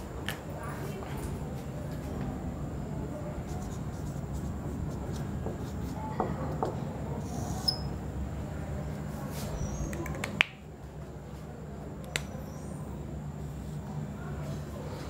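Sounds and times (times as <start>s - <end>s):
low room hum: 0.0s - 15.0s
whiteboard marker squeaking: 7.4s - 8.0s.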